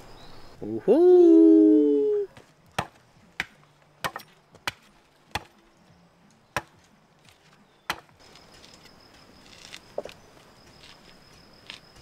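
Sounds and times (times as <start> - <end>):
hatchet chopping wood: 2.4 - 5.6, 6.6 - 8.2.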